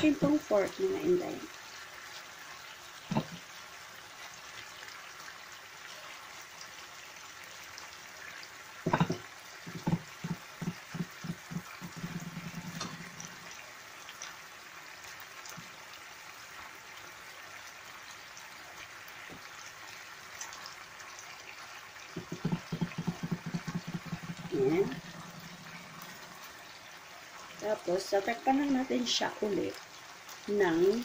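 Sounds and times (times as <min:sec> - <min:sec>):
pot simmering with bubbling hiss: 0:00.0 - 0:31.0
loud knock: 0:22.2 - 0:24.5.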